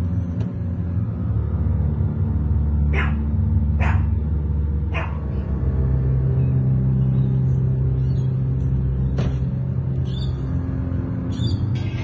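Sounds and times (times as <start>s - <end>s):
low droning background music: 0.0s - 12.0s.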